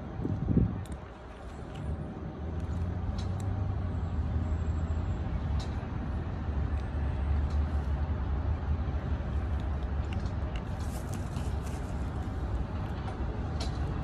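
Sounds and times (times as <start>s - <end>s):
vehicle engine rumbling: 0.0s - 14.0s.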